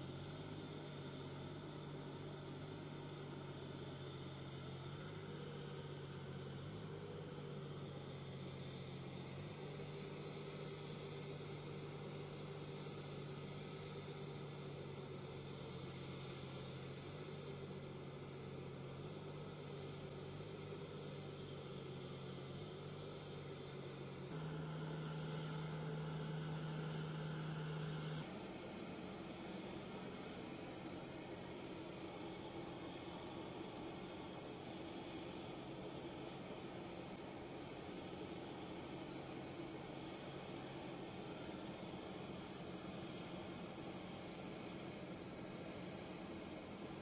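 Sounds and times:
machinery hiss and hum: 0.0 - 47.0.

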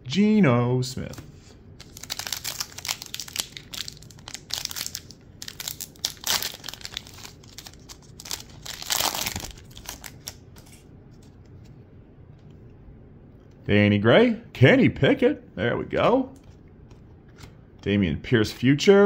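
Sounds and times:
foil wrapper crinkling and tearing: 1.8 - 10.8.

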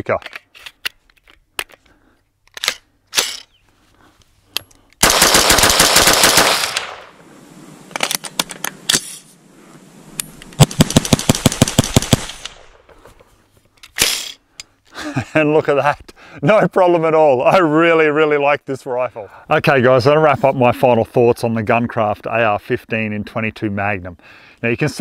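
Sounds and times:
rifle firing semi-automatic: 5.0 - 7.1, 10.6 - 12.8.

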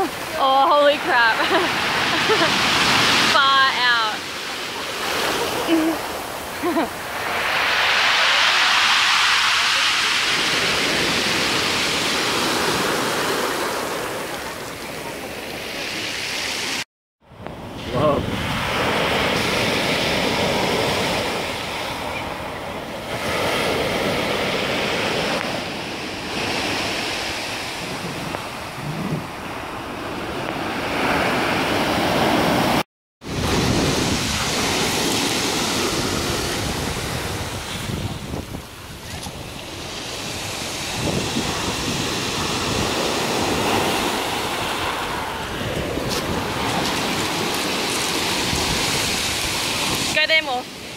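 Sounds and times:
surf breaking on pebble beach: 0.0 - 14.3, 33.3 - 38.5, 39.8 - 50.4
wind buffeting microphone: 17.4 - 24.4, 25.1 - 50.2.

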